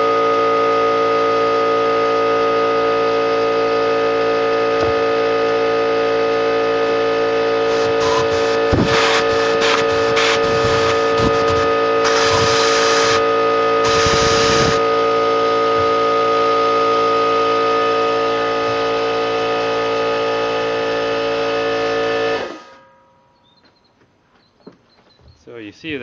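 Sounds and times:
air compressor running: 0.0s - 22.8s
compressed air hissing: 7.6s - 14.9s.

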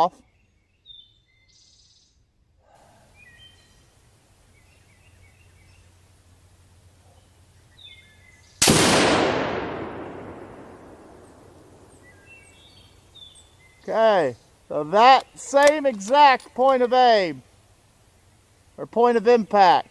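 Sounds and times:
faint bird chirps: 0.0s - 6.0s, 7.0s - 8.6s, 11.1s - 15.4s
loud rifle shot: 8.6s - 12.1s.

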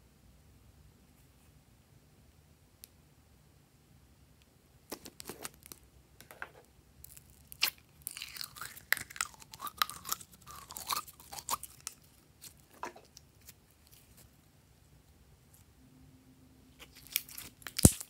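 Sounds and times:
slime squelching and crackling: 7.1s - 14.3s, 16.8s - 18.0s.

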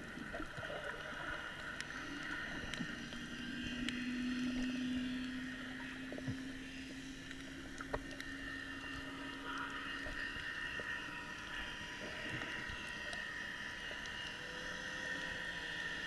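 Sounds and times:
underwater boat engine hum: 0.0s - 16.0s
faint clicks: 0.1s - 16.0s.

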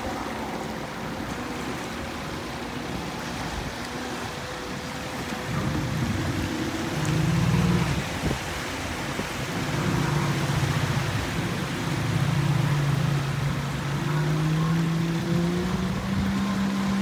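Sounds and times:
jet ski engine at low revs: 0.0s - 17.0s.

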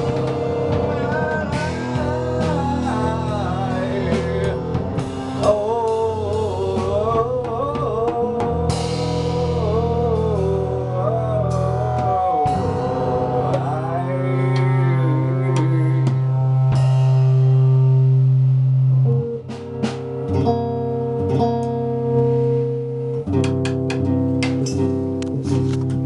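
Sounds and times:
man singing: 0.0s - 16.7s
drum kit with hand drums: 0.0s - 26.0s
electric guitar: 0.0s - 26.0s.

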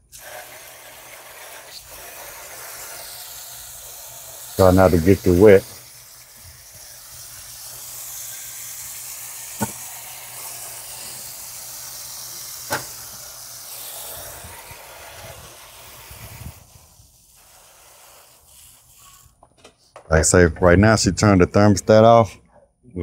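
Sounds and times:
hose spray hissing: 0.0s - 19.4s.

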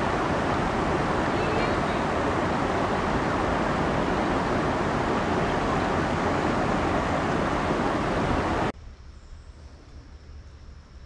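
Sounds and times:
stream water rushing: 0.0s - 8.7s.

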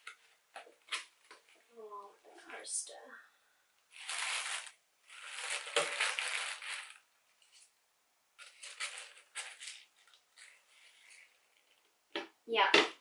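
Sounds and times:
tissue paper rustling: 3.9s - 7.7s, 8.4s - 11.8s.

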